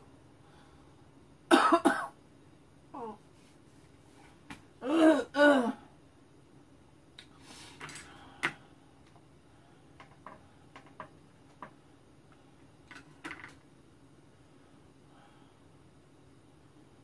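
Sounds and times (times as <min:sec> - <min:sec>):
person coughing: 0:01.5 - 0:02.2, 0:04.8 - 0:05.8.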